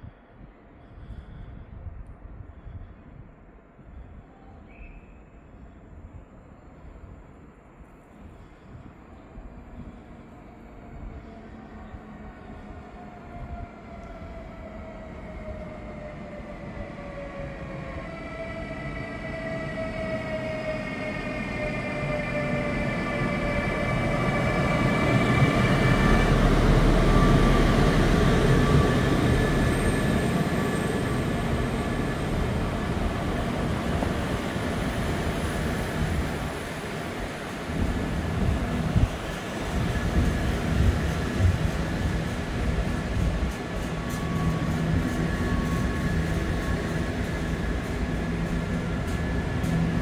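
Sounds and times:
train whining tones: 0:09.8 - 0:50.0
train running gear rumble: 0:24.0 - 0:50.0.

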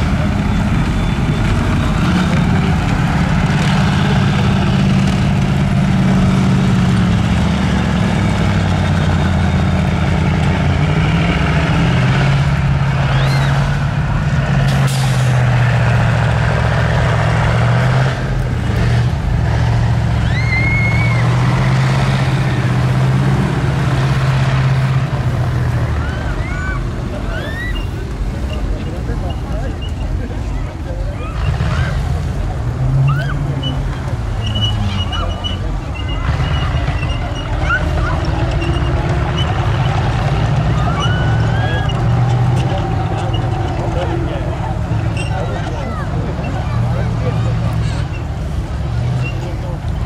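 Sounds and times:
tracked vehicle engine under load: 0:00.0 - 0:50.0
short high squeaks: 0:45.1 - 0:45.6.

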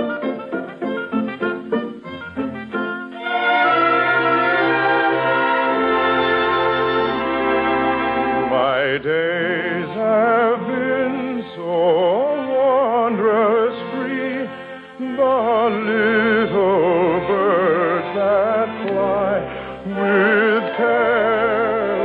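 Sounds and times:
orchestral music: 0:00.0 - 0:22.0
solo singer with vibrato: 0:08.5 - 0:22.0.

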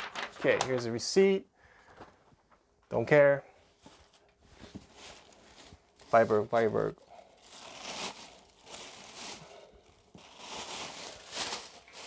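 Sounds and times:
tissue paper crinkling and rustling: 0:00.0 - 0:01.0, 0:03.8 - 0:12.0.

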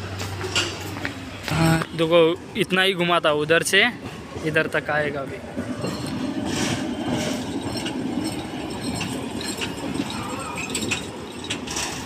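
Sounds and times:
miniature train rumbling on track: 0:00.0 - 0:12.0
clicks and clinks: 0:05.8 - 0:12.0.

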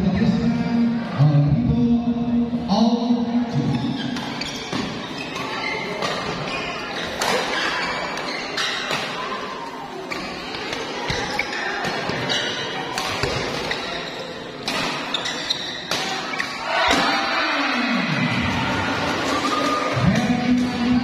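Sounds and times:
spectator chatter: 0:02.2 - 0:21.0
racket hitting shuttlecock: 0:04.2 - 0:09.3, 0:11.8 - 0:14.0, 0:14.6 - 0:17.2.

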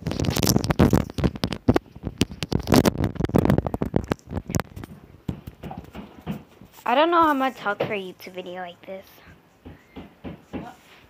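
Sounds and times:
rubbing on phone microphone: 0:00.0 - 0:05.8.

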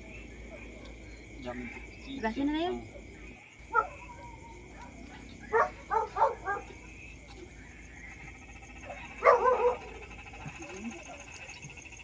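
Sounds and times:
dog barking: 0:03.7 - 0:06.8, 0:08.8 - 0:11.6.

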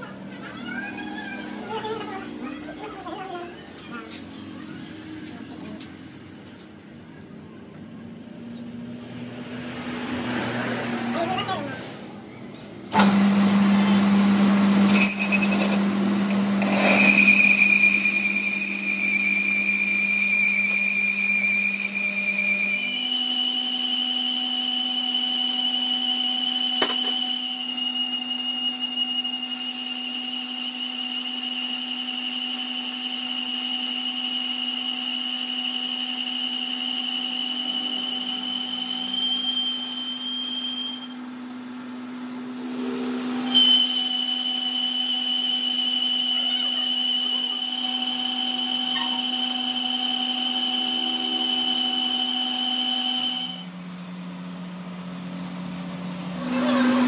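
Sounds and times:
lathe motor hum: 0:12.9 - 0:27.5, 0:30.1 - 0:53.8
high-pitched cutting whine: 0:14.8 - 0:55.3.

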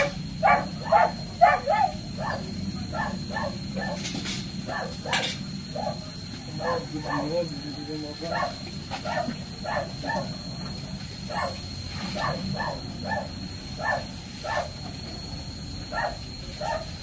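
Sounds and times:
dog barking: 0:00.0 - 0:04.1, 0:04.7 - 0:06.0, 0:06.6 - 0:07.4, 0:08.2 - 0:10.4, 0:11.3 - 0:11.6, 0:12.2 - 0:14.8, 0:15.9 - 0:17.0.

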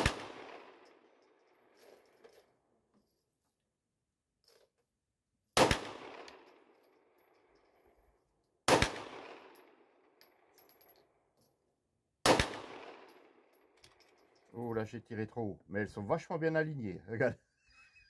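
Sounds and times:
pistol shots echoing: 0:00.0 - 0:00.8, 0:05.6 - 0:06.4, 0:08.7 - 0:09.6, 0:12.2 - 0:13.1.

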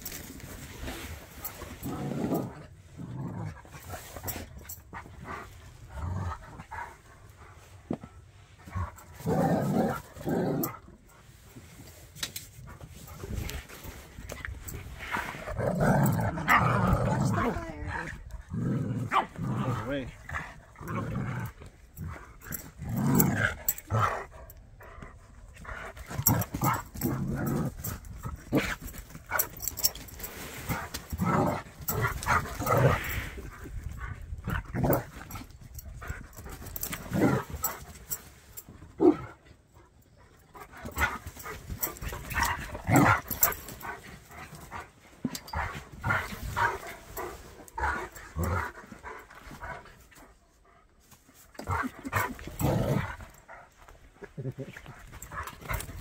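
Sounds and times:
dogs vocalising while playing: 0:20.2 - 0:50.4.

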